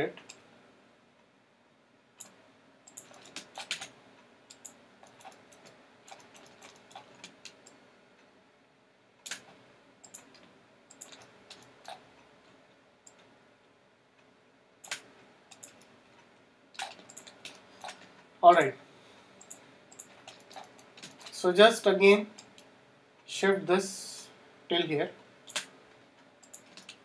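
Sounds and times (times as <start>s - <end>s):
computer mouse and keyboard clicks: 2.2s - 7.8s, 9.2s - 13.3s, 14.8s - 18.3s, 19.4s - 21.4s, 22.4s - 22.7s, 25.5s - 25.8s, 26.4s - 27.0s.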